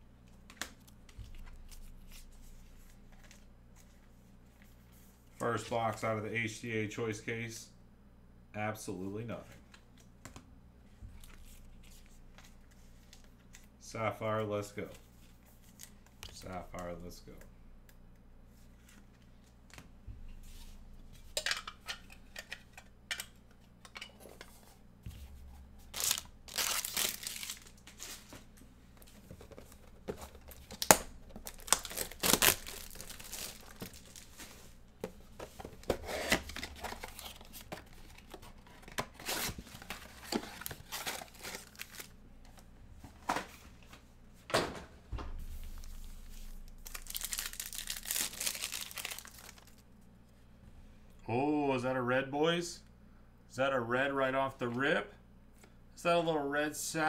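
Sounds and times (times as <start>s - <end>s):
shrink wrap tearing and crinkling: 25.8s - 28.3s, 29.4s - 34.6s, 35.8s - 42.2s, 45.6s - 49.8s
foil pack tearing open: 25.9s - 28.0s, 30.2s - 34.3s, 36.2s - 42.1s, 46.7s - 49.8s.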